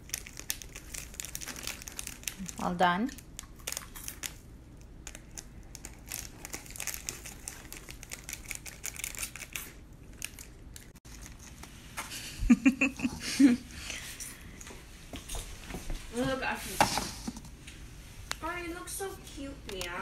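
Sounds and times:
foil sachet crinkling: 0.0s - 11.7s.

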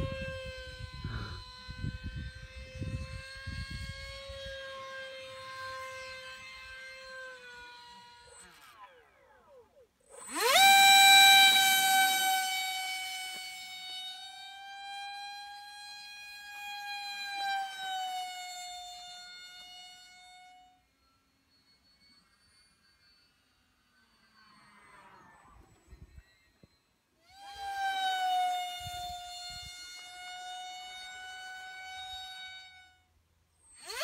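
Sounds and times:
electric ducted fan whining: 0.0s - 21.2s, 27.3s - 34.0s.

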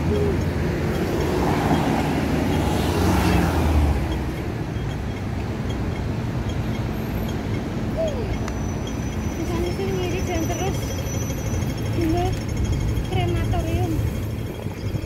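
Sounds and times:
vehicle passing close: 0.0s - 4.8s
traffic engines rumbling: 0.0s - 15.0s.

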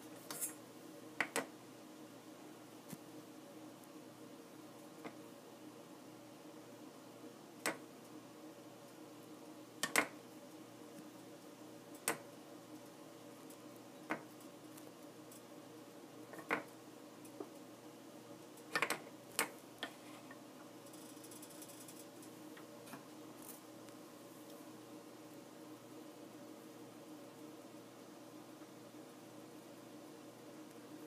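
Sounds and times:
faint hum: 0.0s - 31.0s.

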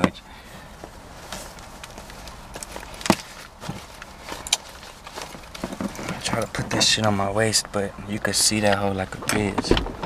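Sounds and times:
clothing rustling: 0.4s - 7.1s.

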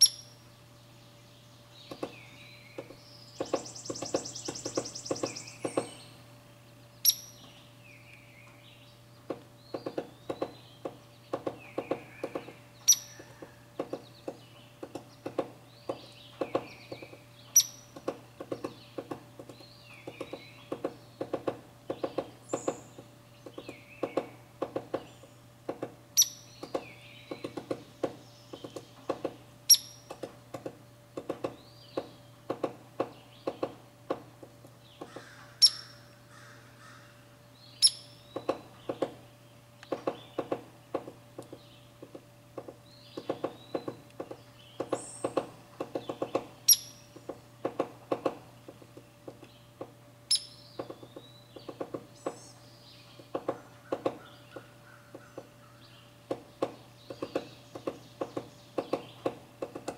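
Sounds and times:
faint birdsong: 0.0s - 59.9s
woodpecker pecking wood: 1.8s - 6.3s, 9.2s - 37.0s, 37.8s - 59.9s.

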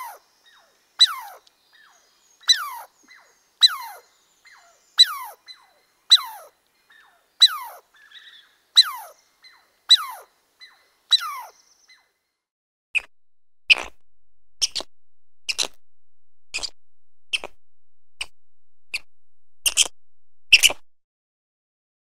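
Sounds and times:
short sharp clicks: 16.5s - 17.6s.

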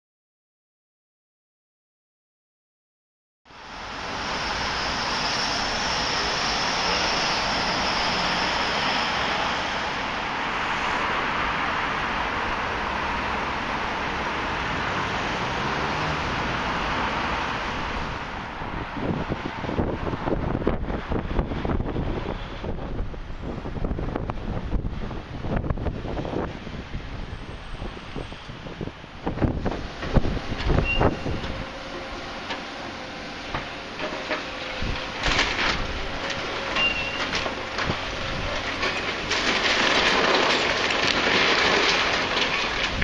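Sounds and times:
street traffic: 3.5s - 43.0s
wind buffeting the microphone: 17.8s - 31.8s, 42.7s - 43.0s
demolition machinery: 28.8s - 43.0s.

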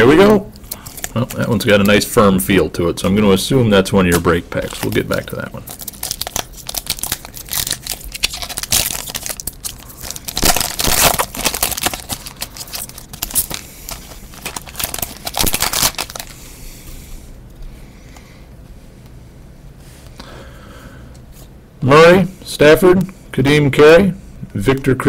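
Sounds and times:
foil wrapper crinkling and tearing: 0.6s - 1.9s, 4.5s - 16.4s.

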